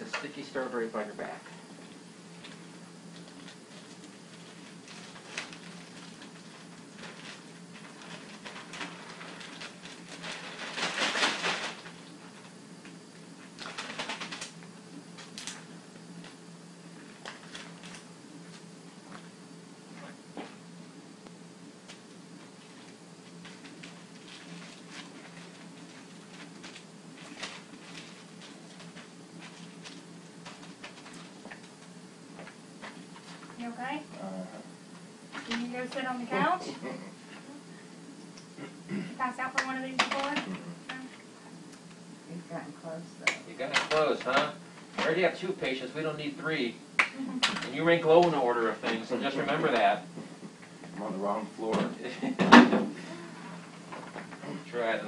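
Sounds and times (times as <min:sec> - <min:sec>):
steady low hum: 0:00.0 - 0:55.0
plastic drape crinkling: 0:03.2 - 0:12.5.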